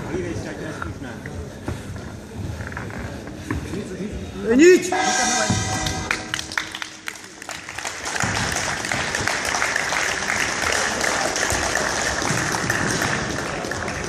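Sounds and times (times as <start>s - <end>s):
crowd applauding: 5.7s - 14.0s.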